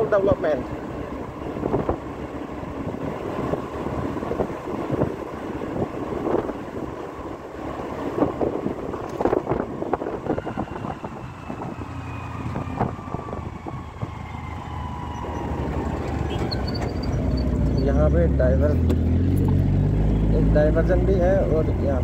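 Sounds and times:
vehicle engine and road noise: 0.0s - 22.0s
wind on microphone: 1.5s - 2.1s, 2.8s - 7.0s, 8.0s - 16.6s.

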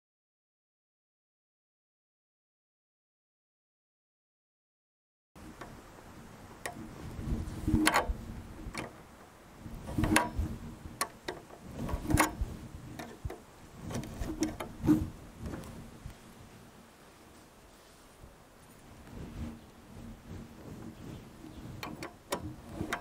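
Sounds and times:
soft handling noise: 5.4s - 23.0s.

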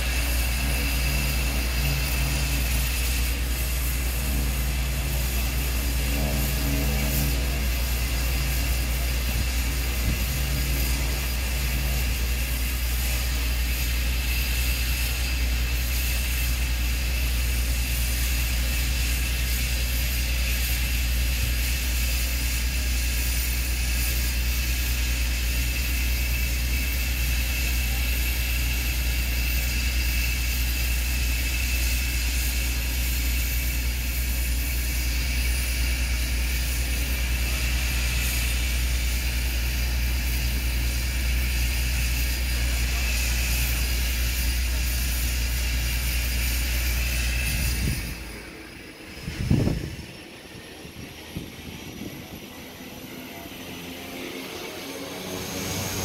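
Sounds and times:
small plane engine droning: 0.0s - 56.0s.

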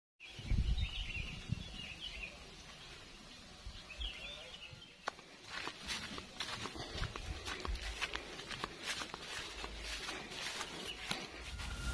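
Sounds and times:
birds chirping: 0.2s - 11.9s.

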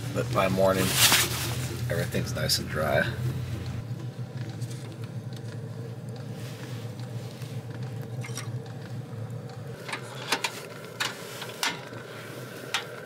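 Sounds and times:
diesel heater humming: 0.0s - 13.0s
clicks and knocks of handling: 7.7s - 12.0s, 12.6s - 13.0s.

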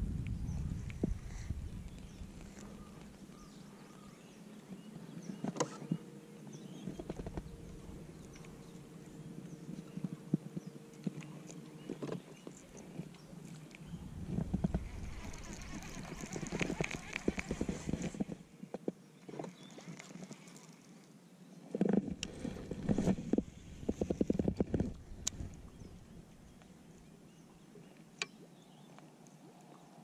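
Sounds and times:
faint steady hum: 0.0s - 19.2s.

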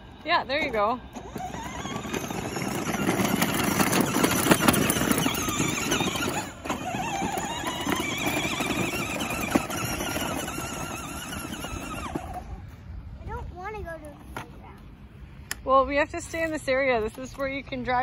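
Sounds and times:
electric motor whine: 0.1s - 12.7s
plastic wheels rolling on dirt: 0.1s - 14.6s.

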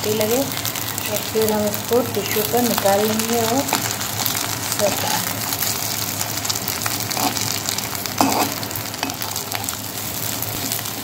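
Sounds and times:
cutlets sizzling in oil: 0.0s - 11.0s
spatula scraping pan: 3.7s - 5.8s, 7.0s - 9.8s.

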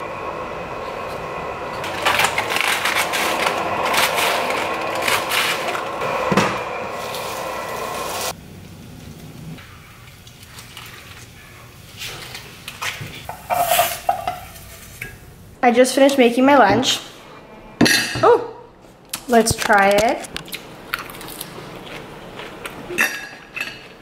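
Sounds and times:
steady hum: 0.0s - 10.1s
knife scraping in frying pan: 13.3s - 15.1s.

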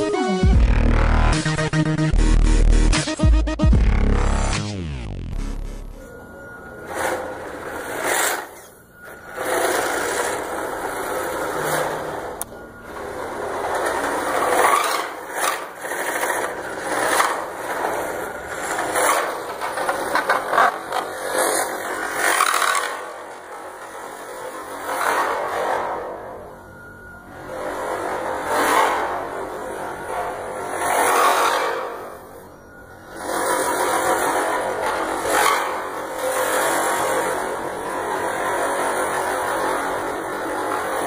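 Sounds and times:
toy truck motor whirring: 6.8s - 12.4s.

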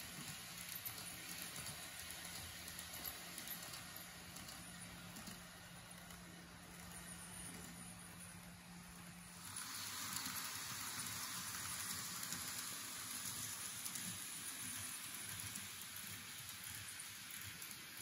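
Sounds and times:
model train wheels rattling on rails: 0.0s - 18.0s.

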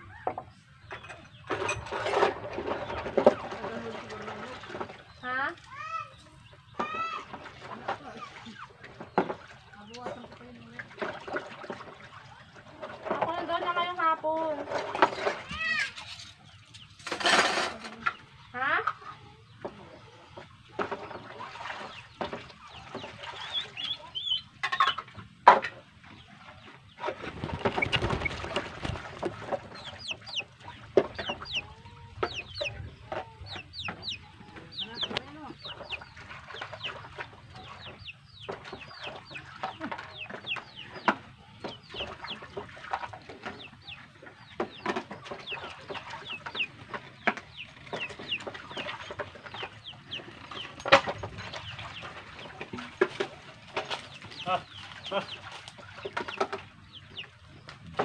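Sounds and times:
chickens clucking: 0.0s - 58.0s
high downward-sliding peeps: 29.6s - 37.0s.

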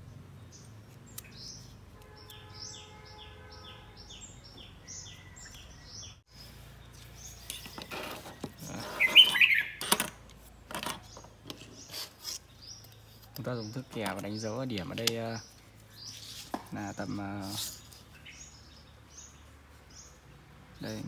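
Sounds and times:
bird chirping: 0.0s - 21.0s
cardboard scraping on wooden table: 7.7s - 9.4s.

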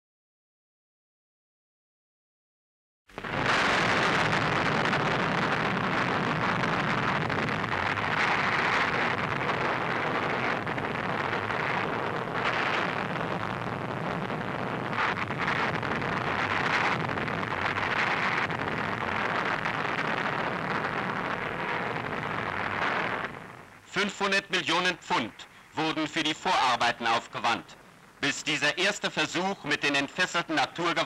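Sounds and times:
explosion roar: 3.2s - 23.6s.

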